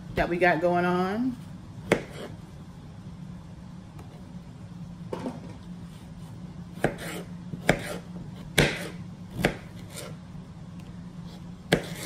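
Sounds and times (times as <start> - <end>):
knife slicing on cutting board: 1.8 - 2.4, 6.8 - 10.2, 11.2 - 12.0.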